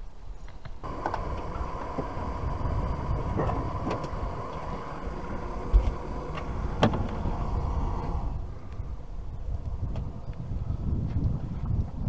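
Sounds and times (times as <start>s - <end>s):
camp stove burner hissing: 0.8s - 9.0s
dull thump: 0.9s - 8.1s.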